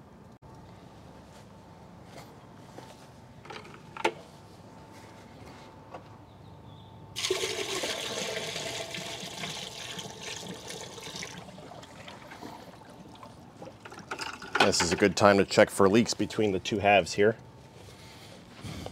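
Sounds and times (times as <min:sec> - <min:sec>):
water pouring from a bucket: 0:07.2 - 0:14.1.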